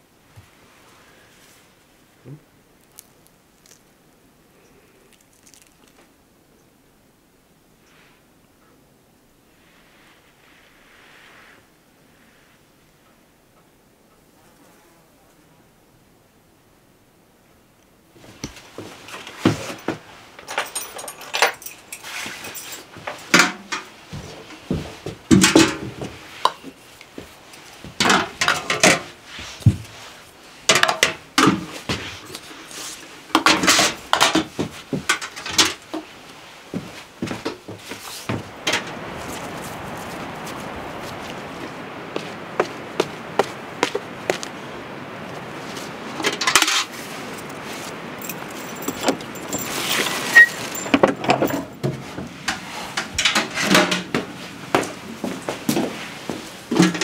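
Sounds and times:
metal buckets clattering: 0:19.0 - 0:26.2, 0:28.0 - 0:29.2, 0:30.6 - 0:36.1, 0:48.2 - 0:56.0, 0:56.6 - 0:57.0
glass jars clinking on metal: 0:48.2 - 0:51.8.

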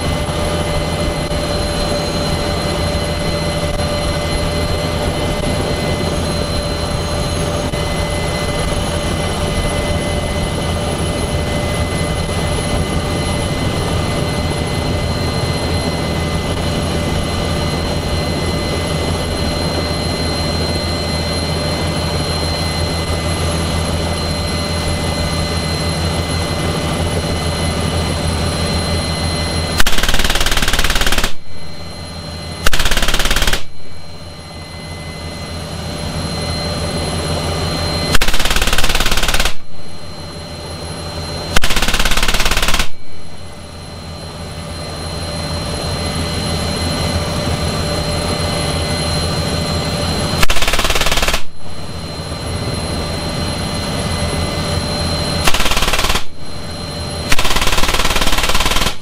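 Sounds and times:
helicopter turbine and rotor whine: 0:00.0 - 0:59.0
heavy machine gun bursts: 0:29.8 - 0:31.4, 0:32.7 - 0:33.7, 0:38.2 - 0:39.6, 0:41.6 - 0:43.0.

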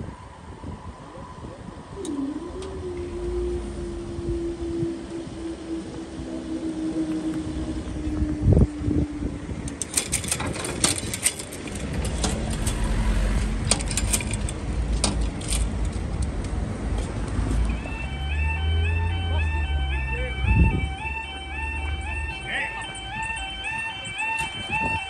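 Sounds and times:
car crossing rails: 0:01.7 - 0:25.0
light metallic clicks and jingles: 0:13.6 - 0:16.6.

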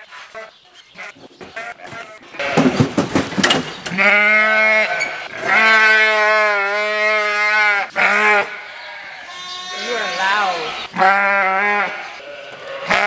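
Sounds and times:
sheep bleating loudly: 0:03.9 - 0:13.0.

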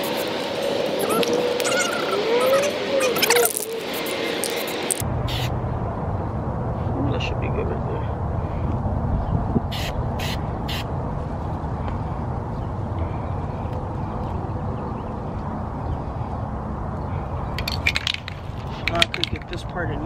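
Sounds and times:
spray can rattling: 0:17.6 - 0:19.5.

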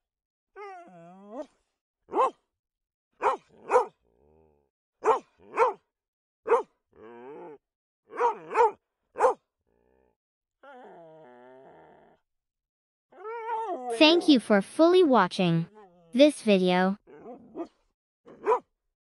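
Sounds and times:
dog whining: 0:00.6 - 0:01.5, 0:10.6 - 0:12.2, 0:13.1 - 0:13.9
dog barking: 0:02.1 - 0:02.4, 0:03.2 - 0:04.0, 0:05.0 - 0:05.8, 0:06.5 - 0:06.7, 0:08.1 - 0:09.5, 0:18.3 - 0:18.7.

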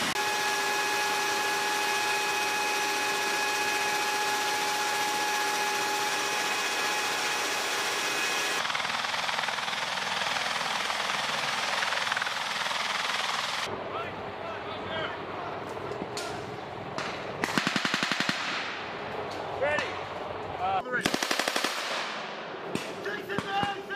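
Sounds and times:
high multi-tone whine: 0:00.0 - 0:08.6
helicopter cabin roar: 0:00.1 - 0:17.0.

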